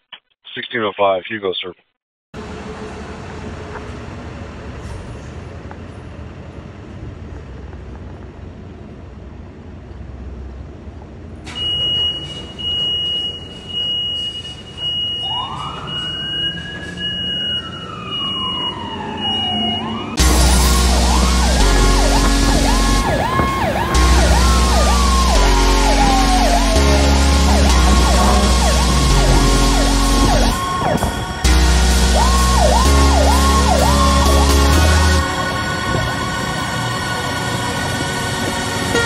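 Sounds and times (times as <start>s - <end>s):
ambulance siren wailing: 14.2s - 39.0s
high electronic beeps: 19.4s - 37.4s
diesel engine running: 20.2s - 39.0s.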